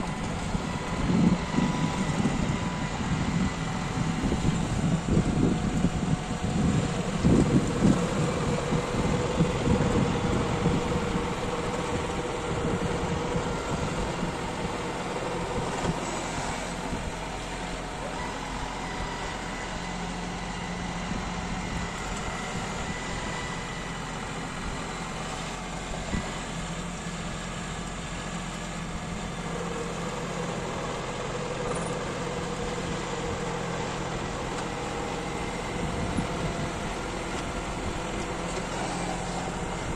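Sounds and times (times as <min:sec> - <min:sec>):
wind buffeting microphone: 0:00.0 - 0:16.0, 0:35.5 - 0:38.5
rotary tiller in dry soil: 0:00.0 - 0:39.9
tractor diesel engine running: 0:00.0 - 0:39.9.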